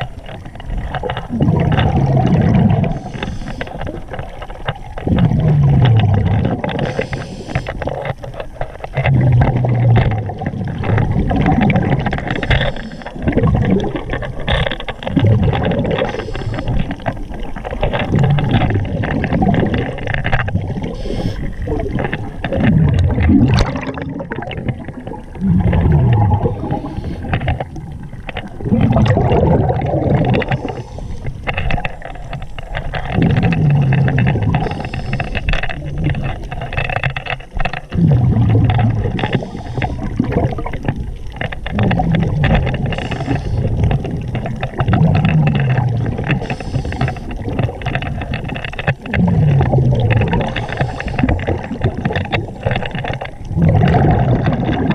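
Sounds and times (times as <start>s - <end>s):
gurgling exhaled bubbles: 0.0s - 54.9s
diver breathing through regulator: 2.8s - 3.9s, 6.7s - 7.9s, 12.3s - 13.3s, 15.9s - 17.0s, 20.8s - 21.7s, 25.6s - 27.7s, 30.4s - 31.6s, 33.5s - 35.8s, 39.2s - 40.2s, 42.8s - 43.9s, 46.3s - 47.4s, 49.6s - 51.7s.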